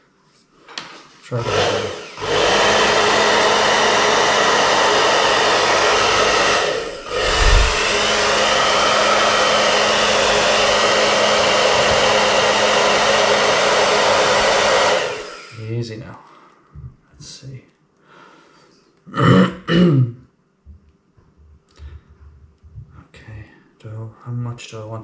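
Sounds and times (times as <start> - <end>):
hair dryer running: 1.3 - 15.8.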